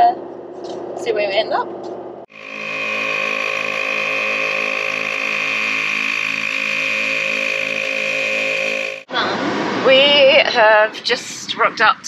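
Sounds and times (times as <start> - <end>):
air compressor whining and chugging: 2.3 - 9.1.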